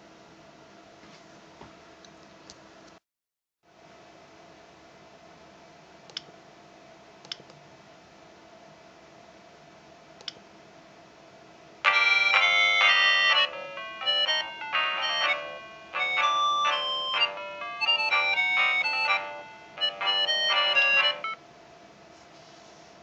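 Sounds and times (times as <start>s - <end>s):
phone ringtone: 11.9s - 21.4s.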